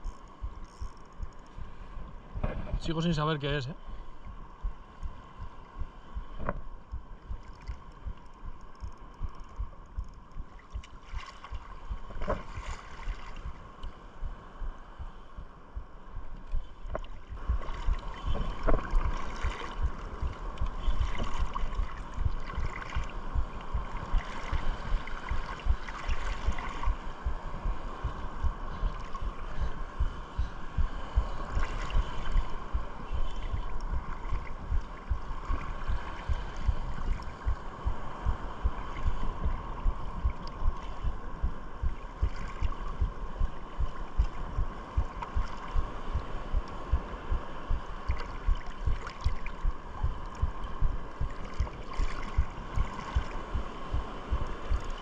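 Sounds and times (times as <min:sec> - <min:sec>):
faint steady whine: 0:00.0 - 0:55.0
water sloshing and lapping: 0:03.9 - 0:14.1, 0:16.2 - 0:55.0
wind buffeting microphone: 0:14.2 - 0:55.0.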